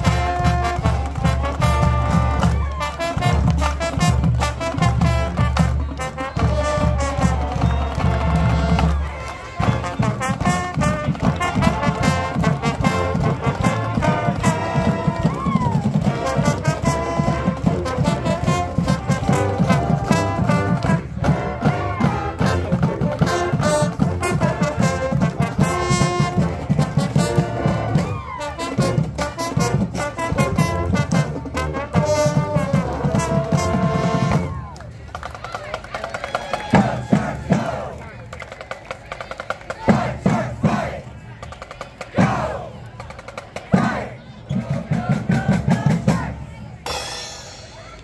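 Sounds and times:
brass playing: 0:00.0 - 0:34.6
drumline: 0:00.0 - 0:48.0.

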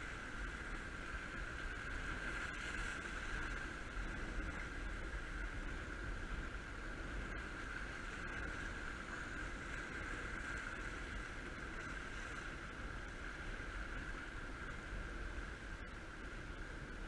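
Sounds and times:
sea surf against rocks: 0:00.0 - 0:17.0
steady high hum: 0:00.0 - 0:17.0
wind rumble on microphone: 0:00.0 - 0:17.0.

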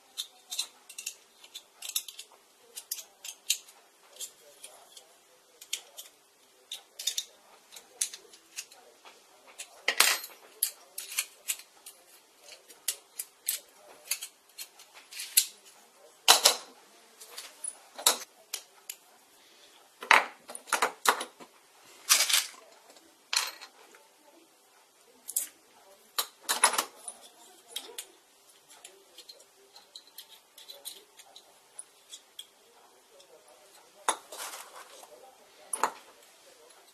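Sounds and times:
small metal parts clicking: 0:00.0 - 0:08.8, 0:09.6 - 0:15.5.

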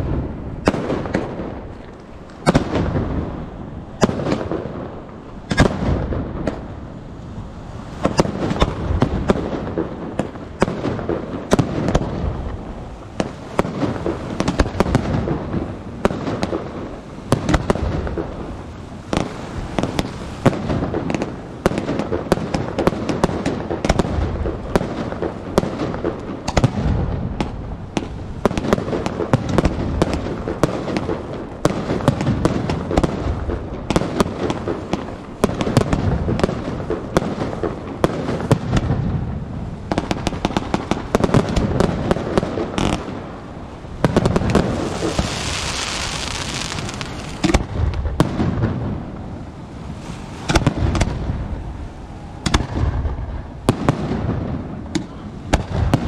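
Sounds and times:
fireworks bursting: 0:00.0 - 0:56.0
steady hiss: 0:39.2 - 0:53.8.

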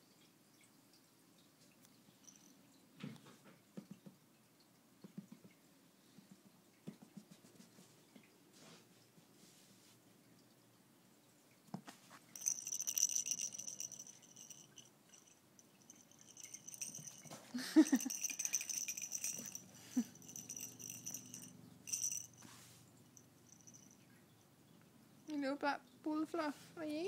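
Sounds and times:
rattle toy rattling: 0:02.2 - 0:02.5, 0:12.3 - 0:22.6, 0:23.4 - 0:24.0.

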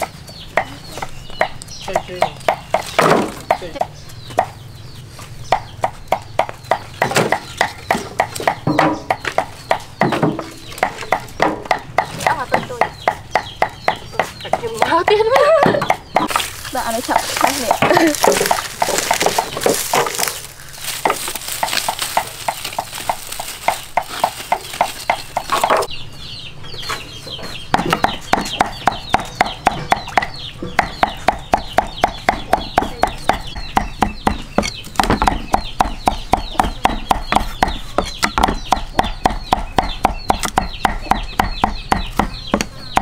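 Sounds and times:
knife chopping on wooden board: 0:27.7 - 0:43.0.

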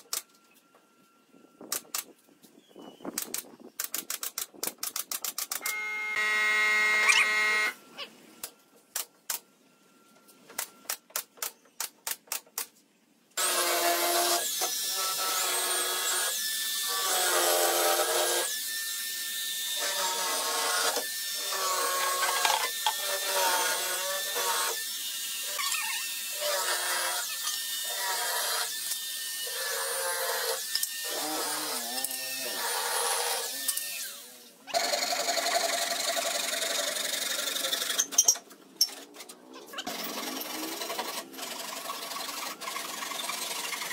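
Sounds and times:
power tool cutting wood: 0:05.6 - 0:07.8, 0:13.4 - 0:38.4, 0:39.0 - 0:43.9.

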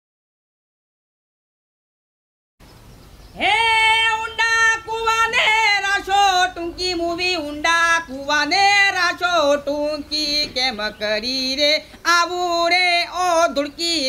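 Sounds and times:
woman singing folk song: 0:03.3 - 0:14.0.

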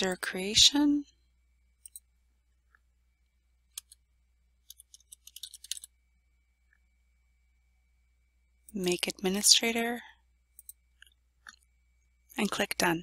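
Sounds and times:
keyboard typing: 0:04.6 - 0:05.9.

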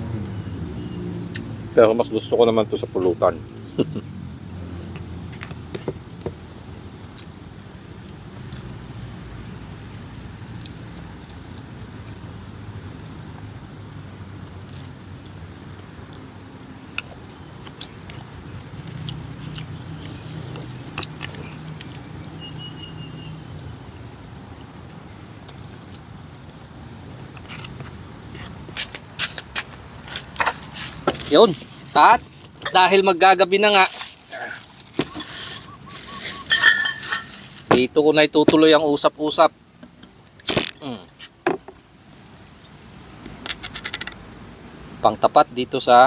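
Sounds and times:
man chewing food: 0:14.5 - 0:22.1.

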